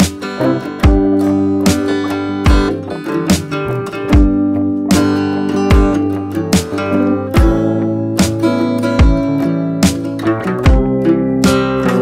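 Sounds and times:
acoustic guitar strumming: 0:00.0 - 0:12.0
low thumps: 0:00.8 - 0:08.4.

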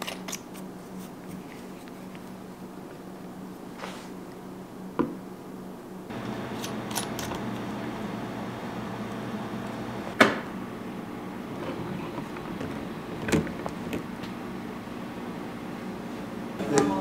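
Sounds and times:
steady low hum: 0:02.0 - 0:17.0.

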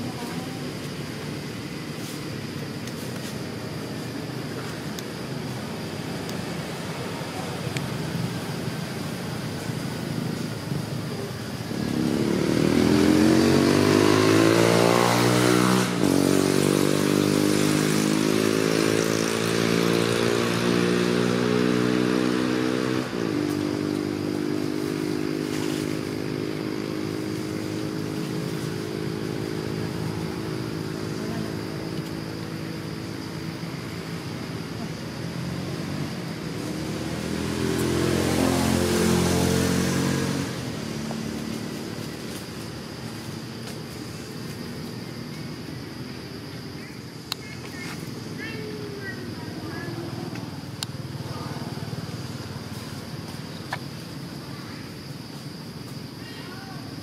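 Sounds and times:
vehicle engine running: 0:23.3 - 0:54.5.

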